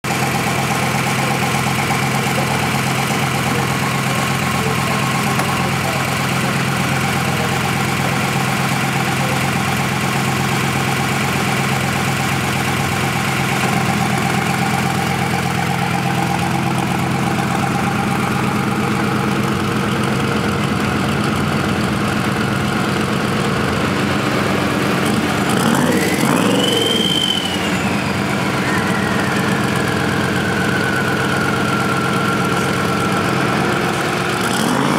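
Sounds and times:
diesel engine idling and revving: 0:00.0 - 0:34.9
turbocharger whine: 0:00.1 - 0:34.9.

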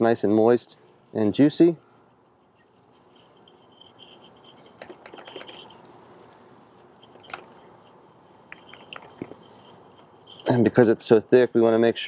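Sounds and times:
spice shaker rattling: 0:02.4 - 0:05.8, 0:06.9 - 0:10.7.

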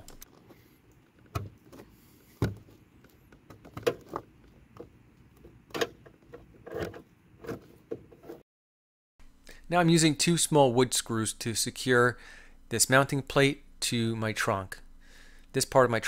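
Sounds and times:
cable knocking and scraping plastic: 0:01.1 - 0:08.4.

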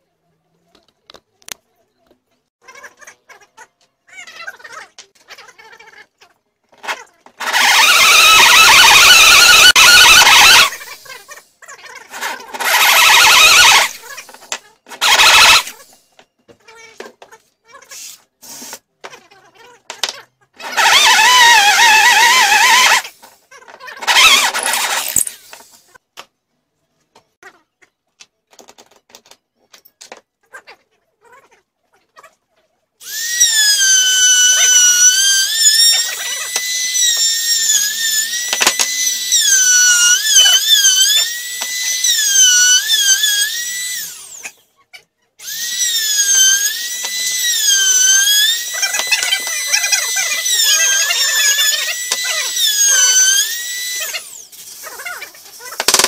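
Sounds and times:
power tool whining into wood: 0:06.8 - 0:11.2, 0:12.1 - 0:16.1, 0:20.6 - 0:23.4, 0:24.0 - 0:25.8, 0:33.0 - 0:44.7, 0:45.4 - 0:56.0.

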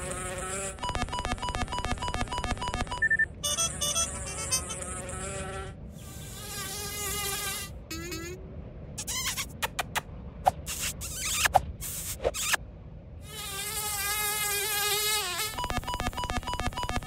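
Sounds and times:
short buzzy chirps: 0:00.8 - 0:05.0
cartoon fly buzz: 0:03.5 - 0:08.4, 0:10.7 - 0:12.6, 0:13.3 - 0:15.6.

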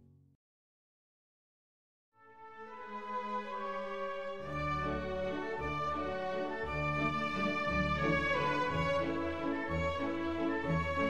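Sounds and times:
bowed strings music: 0:02.4 - 0:11.0.

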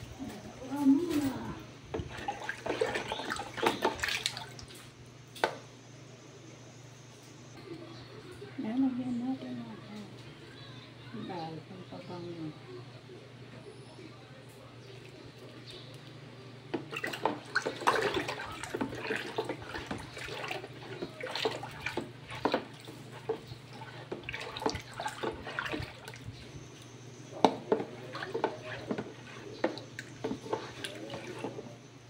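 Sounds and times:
drink sloshing in plastic container: 0:01.1 - 0:05.0, 0:16.7 - 0:31.9.

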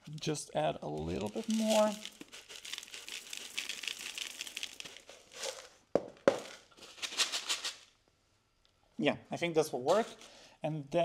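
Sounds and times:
granules pouring into plastic pot: 0:00.0 - 0:07.9.

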